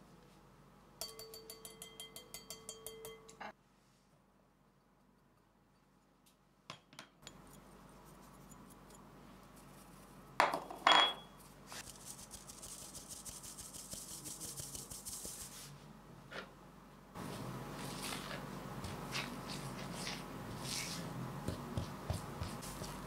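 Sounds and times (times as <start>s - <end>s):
metal sieve clinking on glass bowl: 1.0s - 3.4s
flour sifting through sieve: 7.4s - 10.4s, 11.4s - 15.8s, 17.2s - 23.0s.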